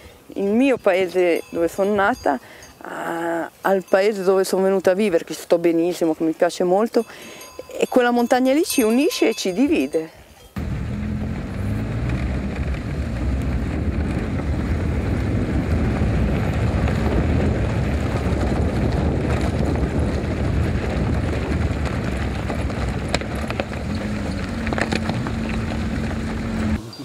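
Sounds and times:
sharp knocks and rattles: 0:10.6 - 0:26.8
vehicle engine and tyre rumble: 0:10.6 - 0:27.0.

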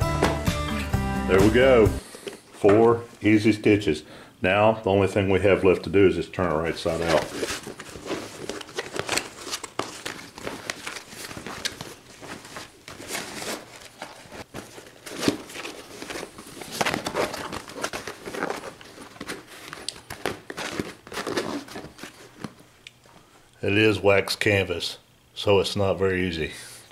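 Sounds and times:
canvas crinkling and rustling: 0:06.8 - 0:22.6.

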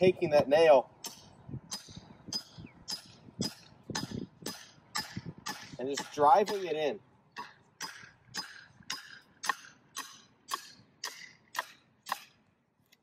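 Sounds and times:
hammer striking nail into wood: 0:01.0 - 0:06.7, 0:07.8 - 0:12.3.

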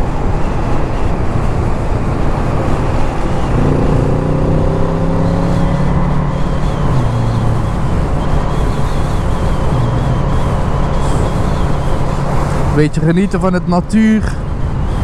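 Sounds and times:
wind rush on microphone: 0:00.0 - 0:15.0
motorcycle engine running: 0:01.8 - 0:12.8.

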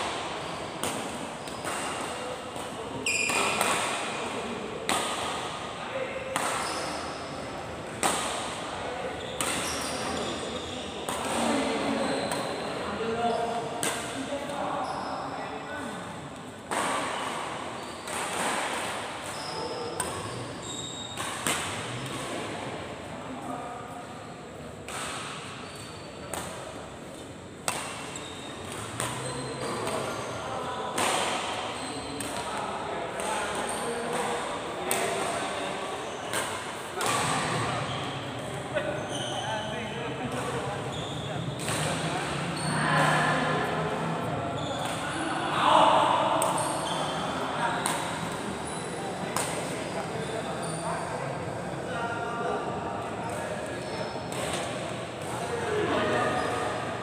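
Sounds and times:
rackets hitting shuttlecock: 0:00.0 - 0:05.5, 0:06.3 - 0:06.9, 0:07.9 - 0:08.7, 0:09.4 - 0:10.2, 0:13.8 - 0:14.2, 0:21.1 - 0:22.5, 0:24.8 - 0:30.2, 0:30.9 - 0:35.5, 0:36.2 - 0:38.6, 0:41.6 - 0:42.4, 0:49.3 - 0:49.8, 0:54.3 - 0:55.7.

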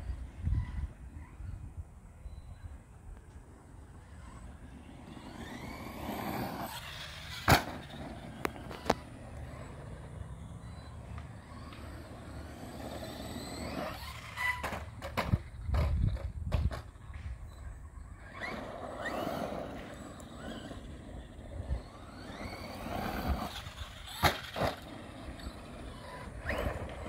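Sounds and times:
electric motor whine: 0:03.5 - 0:15.5, 0:17.6 - 0:27.0.

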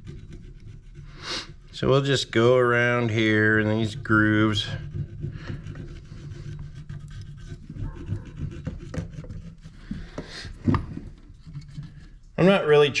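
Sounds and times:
metal scratching and clicking: 0:00.0 - 0:10.0
heavy breathing: 0:01.0 - 0:01.7, 0:09.7 - 0:10.8.

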